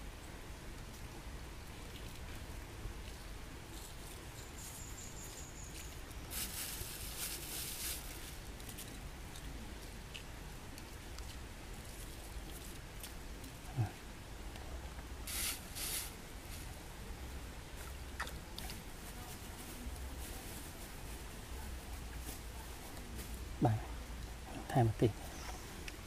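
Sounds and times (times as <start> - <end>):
low steady rumble: 0.0 - 26.0
salt grains pattering: 3.8 - 8.8, 15.2 - 16.8.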